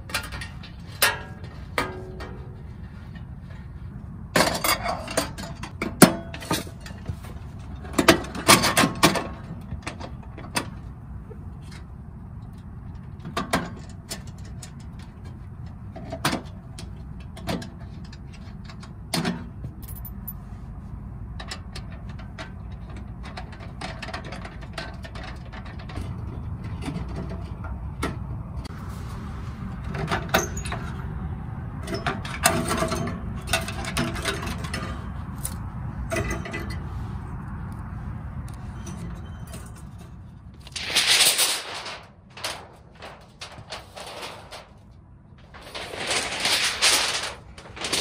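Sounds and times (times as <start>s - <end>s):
steady low rumble: 40.0s - 48.0s.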